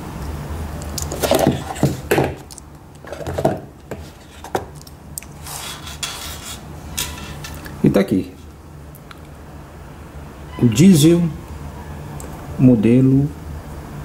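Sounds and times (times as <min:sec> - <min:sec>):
steady low hum: 0:00.0 - 0:14.0
hands handling cardboard box: 0:01.1 - 0:04.8.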